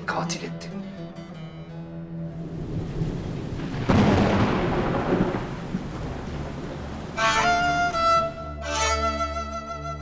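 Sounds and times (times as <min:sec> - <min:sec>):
rain hiss: 0:02.4 - 0:08.4
thunderclap and rumble: 0:02.5 - 0:07.4
violin music: 0:06.8 - 0:10.0.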